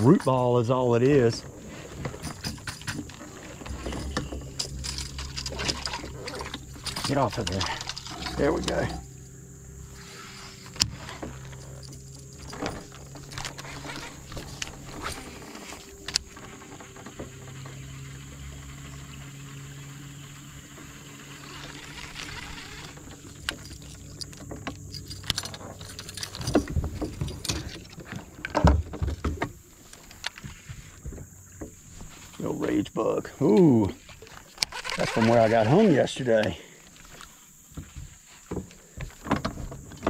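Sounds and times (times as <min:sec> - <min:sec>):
heavy bumps: 0:00.0 - 0:17.4
steady low hum: 0:00.0 - 0:34.3
fishing reel clicks and knocks: 0:21.2 - 0:27.8, 0:34.6 - 0:35.8.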